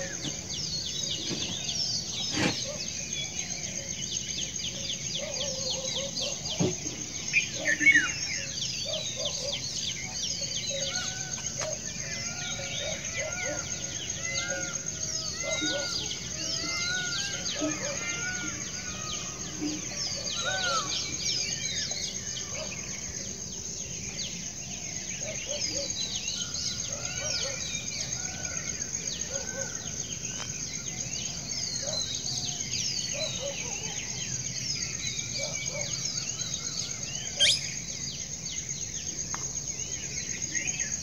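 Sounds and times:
birds chirping: 0.0 - 41.0
high-pitched insect drone: 34.9 - 41.0.

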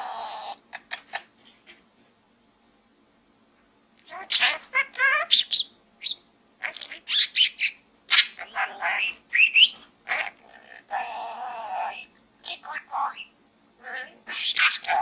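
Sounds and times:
budgerigar chattering and warbling: 4.1 - 15.0.

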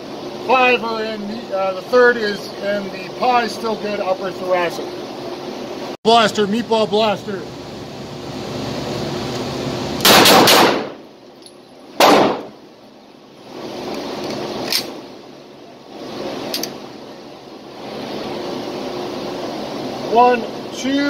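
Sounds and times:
pistol shots indoors: 10.0 - 11.0, 12.0 - 12.5.

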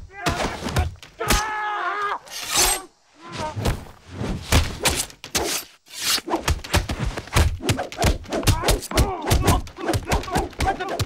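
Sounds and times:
punch and kick impacts: 3.6 - 5.6, 6.4 - 11.0.

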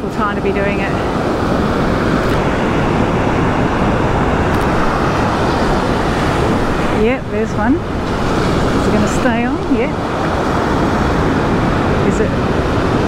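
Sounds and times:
ocean surf breaking on beach: 0.0 - 13.0.

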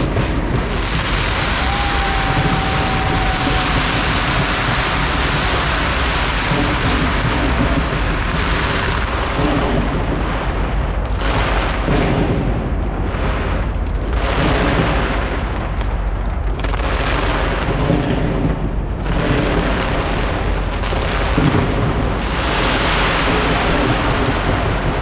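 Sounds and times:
fireworks booming and crackling: 0.0 - 25.0.

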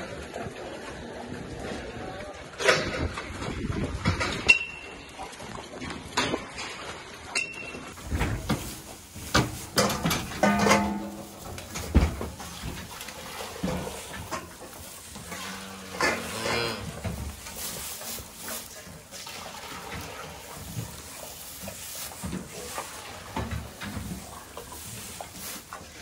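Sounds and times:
metal bowl and bucket clinking: 4.0 - 5.2, 6.1 - 26.0
metal gates clanking: 9.5 - 12.3
calf bleating: 15.2 - 17.2.

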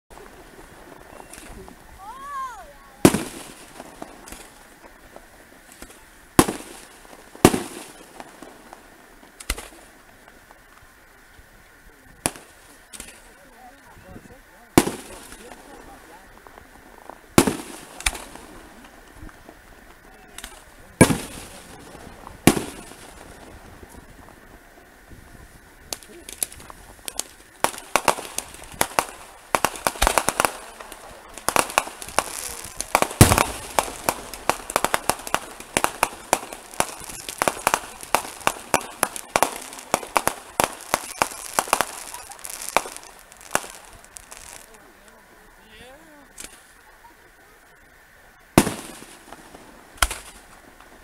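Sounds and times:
rapid crackling pops: 0.1 - 51.0
firework shell bursts: 9.4 - 9.9, 12.2 - 13.3, 17.4 - 18.8, 20.3 - 21.8, 22.4 - 23.3, 25.9 - 44.6, 48.6 - 50.6.

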